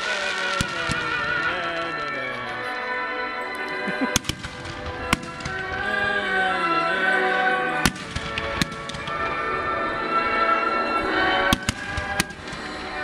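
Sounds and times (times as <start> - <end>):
fireworks bangs: 0.0 - 2.5, 3.9 - 6.4, 7.3 - 10.0, 11.5 - 13.0
music playing: 0.0 - 13.0.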